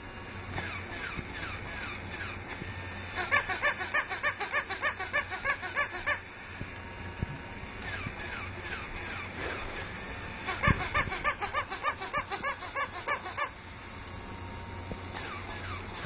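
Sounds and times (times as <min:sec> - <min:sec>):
toy electronic laugh: 0:03.1 - 0:06.3, 0:10.4 - 0:13.6.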